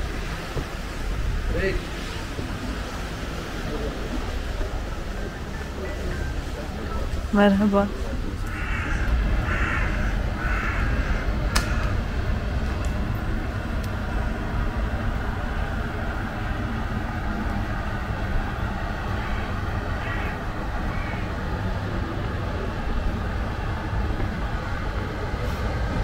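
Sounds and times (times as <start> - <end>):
low outdoor rumble: 0.0 - 26.0
crow cawing: 8.5 - 12.0, 19.2 - 21.4.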